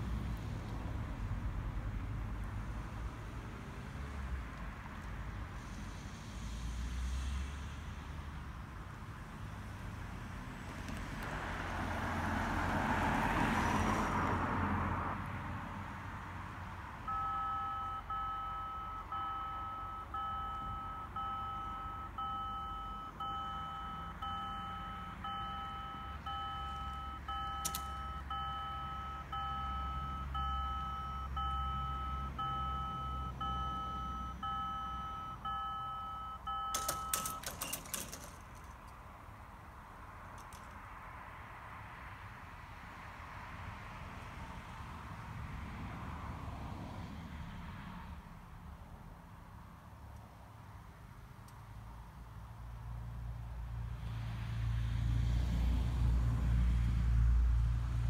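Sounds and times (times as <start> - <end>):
car driving past: 9.5 - 15.9
level crossing warning bell beeping: 17.1 - 38.4.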